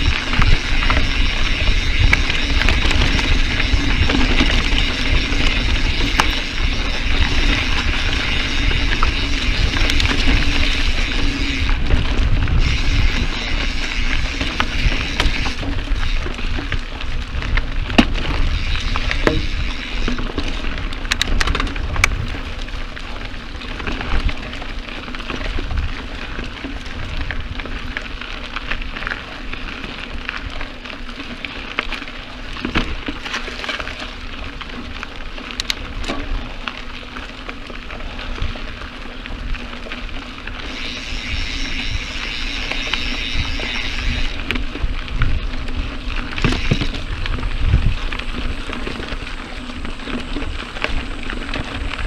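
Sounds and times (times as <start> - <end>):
bike tyres rolling over dirt: 0.0 - 52.0
clicks and knocks from stones: 20.2 - 22.4, 30.3 - 36.8.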